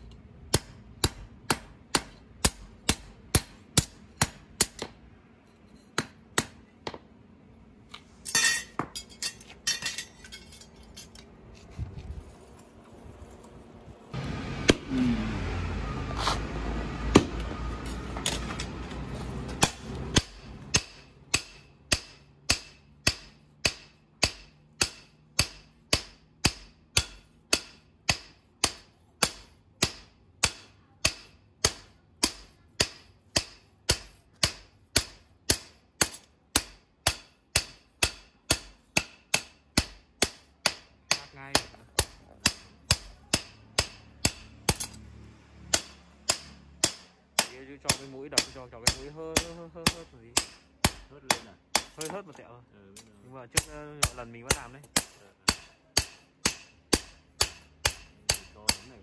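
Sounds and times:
hammer striking steel on anvil: 0.0s - 7.0s, 8.2s - 11.2s, 14.6s - 15.0s, 19.5s - 45.1s, 45.7s - 52.2s, 53.0s - 59.0s.

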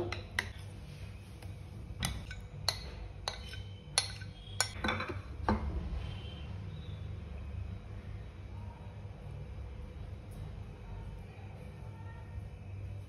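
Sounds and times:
metal spoon clinking on glass: 2.0s - 5.2s.

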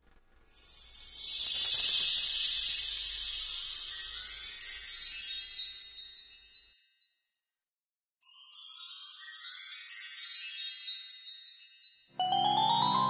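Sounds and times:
upward sweeping shimmer: 0.6s - 4.7s, 12.2s - 13.0s
high tinkling chimes: 0.6s - 7.4s, 8.2s - 13.0s.

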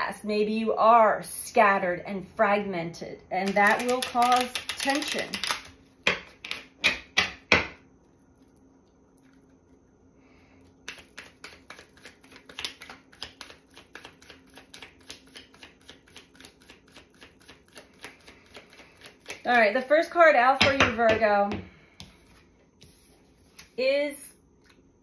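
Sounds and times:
cards being shuffled: 3.4s - 5.8s, 10.9s - 19.6s.

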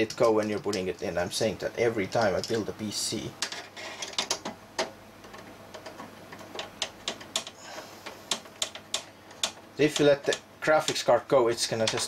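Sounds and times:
metallic clicks and ticks: 0.0s - 1.1s, 2.0s - 2.7s, 3.4s - 11.1s.

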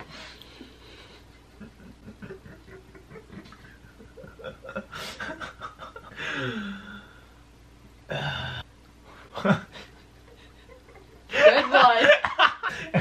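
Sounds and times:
stifled giggling: 1.0s - 6.5s, 9.3s - 13.0s.

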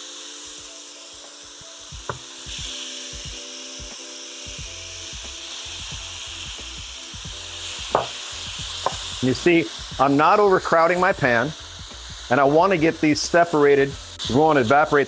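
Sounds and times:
chicken sizzling in a frying pan: 0.0s - 15.0s
sharp tap: 7.9s - 8.2s, 8.8s - 9.1s.

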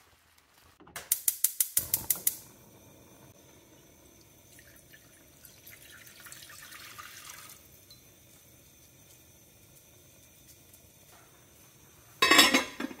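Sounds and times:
water pouring into a saucepan: 1.9s - 11.1s.

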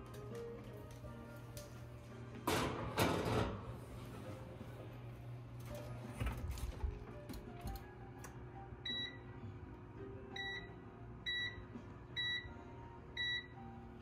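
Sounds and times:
oven control panel beeping: 8.2s - 9.4s, 10.3s - 13.8s.

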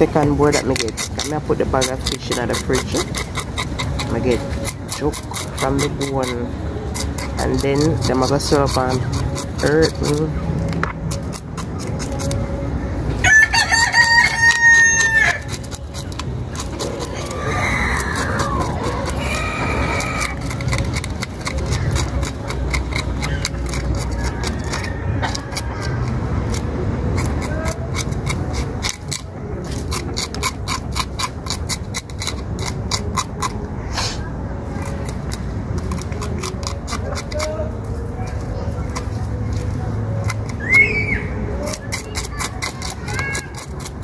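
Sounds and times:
knife scraping fish scales: 0.1s - 10.4s, 11.1s - 12.5s, 14.0s - 37.6s, 41.4s - 44.0s
rooster crowing: 13.2s - 15.5s, 17.2s - 20.4s, 24.2s - 25.9s.

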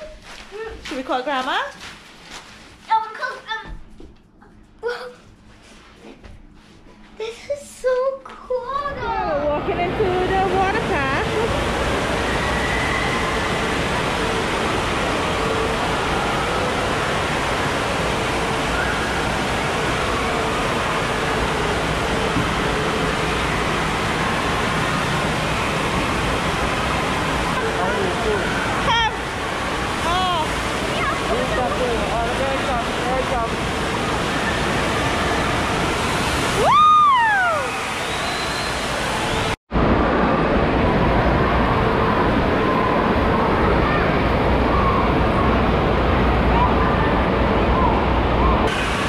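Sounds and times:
water pouring and splashing: 10.6s - 39.6s
crowd: 36.5s - 49.0s.

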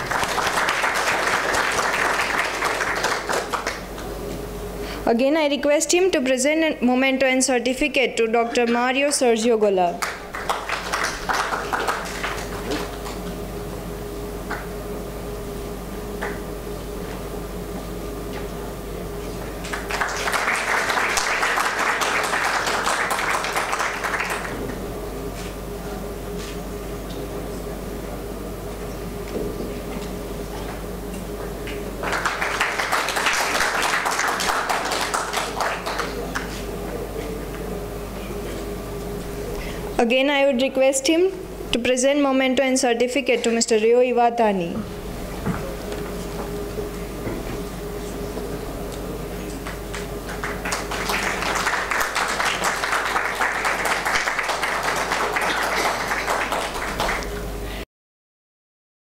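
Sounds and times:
audience applause: 0.0s - 4.1s, 10.0s - 13.0s, 19.6s - 24.7s, 32.0s - 36.6s, 49.6s - 57.4s
steady low hum: 0.0s - 57.8s.

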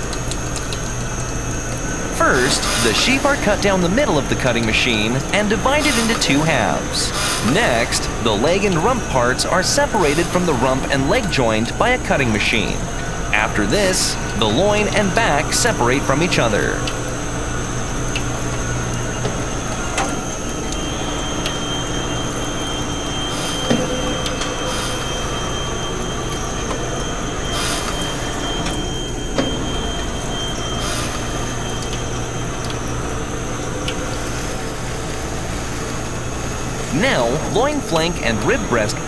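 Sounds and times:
higher machine whine: 0.0s - 39.0s
machinery hum and whine: 0.0s - 39.0s.

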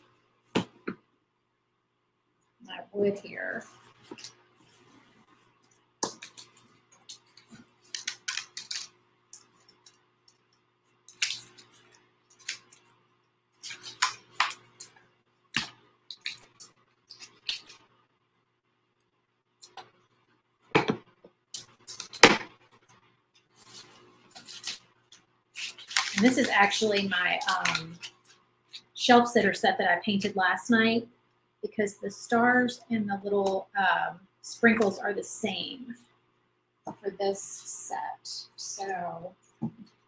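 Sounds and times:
tape peeling and crumpling: 6.1s - 13.0s, 13.6s - 15.0s, 16.1s - 18.0s, 21.6s - 28.9s.

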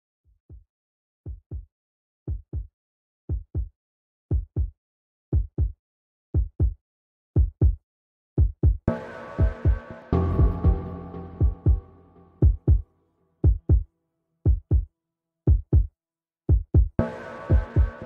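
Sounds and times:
heartbeat thumps: 1.3s - 1.7s, 2.3s - 2.7s, 3.3s - 3.7s, 4.3s - 5.8s, 6.4s - 6.8s, 7.4s - 7.8s, 8.4s - 12.8s, 13.4s - 13.9s, 14.5s - 14.9s, 15.5s - 15.9s, 16.5s - 18.0s.

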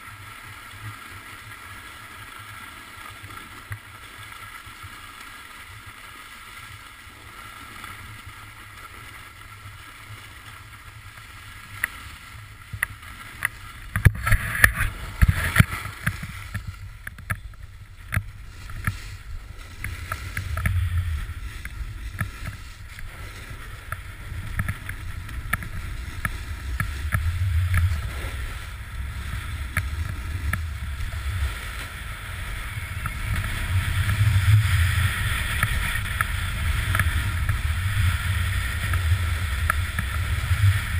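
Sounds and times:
snowboard sliding on snow: 0.0s - 40.9s
wind buffeting camera: 12.6s - 40.9s.

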